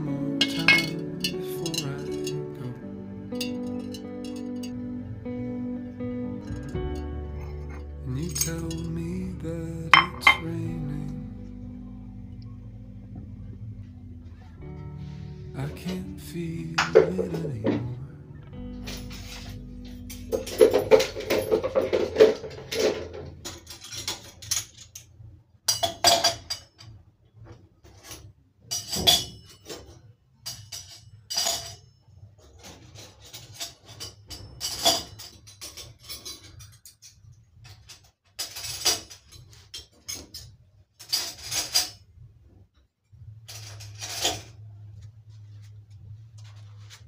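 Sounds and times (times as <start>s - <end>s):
music: 0.0s - 24.7s, 43.2s - 47.0s
faint low hum: 0.0s - 47.0s
kitchenware clinking and clattering: 0.4s - 2.4s, 7.4s - 9.0s, 9.9s - 10.6s, 16.8s - 17.8s, 18.8s - 42.1s, 43.5s - 44.6s.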